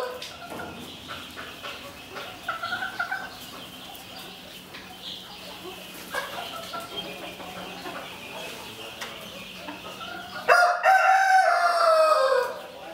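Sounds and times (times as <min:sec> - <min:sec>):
rooster crowing: 0:10.5 - 0:12.6.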